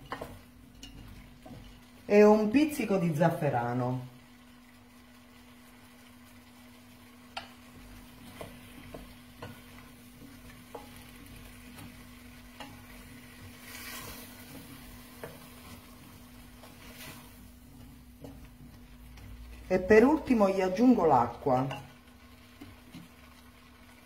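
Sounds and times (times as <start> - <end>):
faint frying sizzle: 0.0 - 24.0
food stirred in a pot: 0.0 - 24.0
utensil clicking against pot: 7.3 - 7.6.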